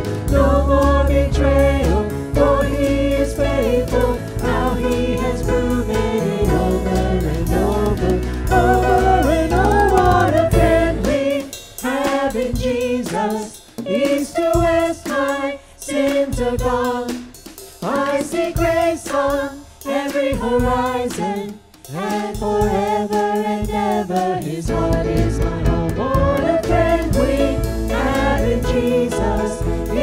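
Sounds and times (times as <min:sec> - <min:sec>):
low accompaniment: 0:00.0 - 0:11.4, 0:24.7 - 0:30.0
choir singing a hymn: 0:00.0 - 0:30.0.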